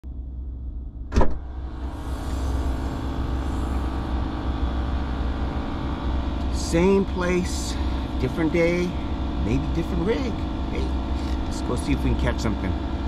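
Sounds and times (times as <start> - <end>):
outdoor noise with low rumble: 0.0 - 13.0.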